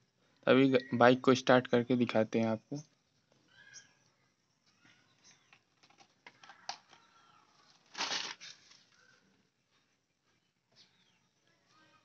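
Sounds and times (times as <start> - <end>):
scraping rustle: 7.5 - 9.0.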